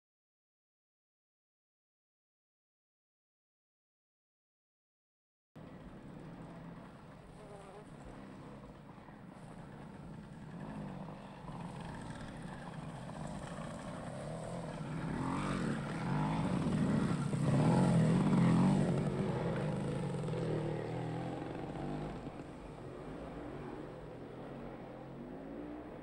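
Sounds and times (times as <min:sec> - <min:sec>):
motorcycle engines passing: 0:05.6 - 0:26.0.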